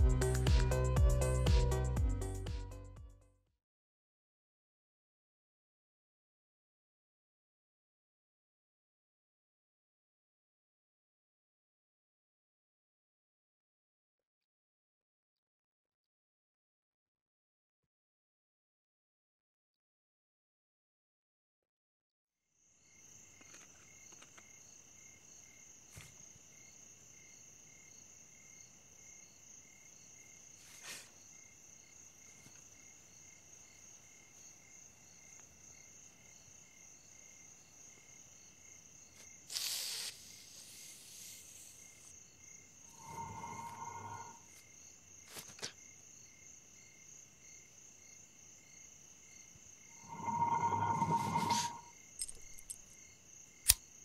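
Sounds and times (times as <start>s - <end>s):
crickets chirping: 22.6s - 54.0s
brief hiss: 39.5s - 41.9s.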